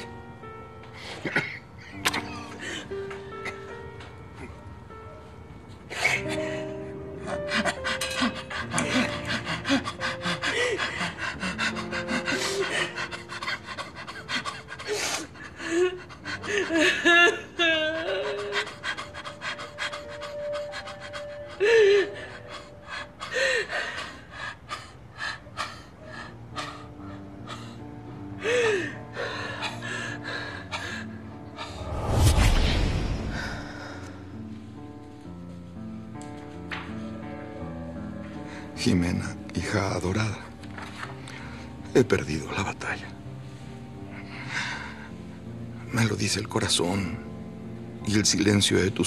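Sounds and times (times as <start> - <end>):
soft background music: 0.0 - 49.0
woman sobbing and gasping: 5.9 - 32.2
deep low boom: 31.8 - 34.0.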